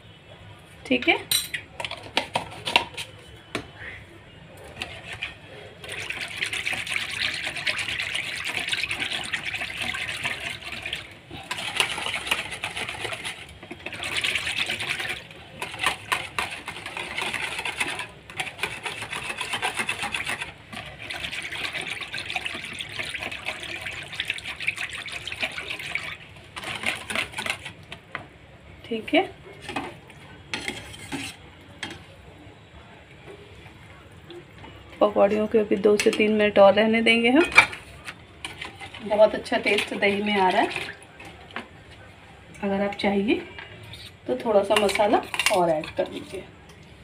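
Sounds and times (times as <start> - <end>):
whisk beating in plastic bowl: 4.8 - 27.7.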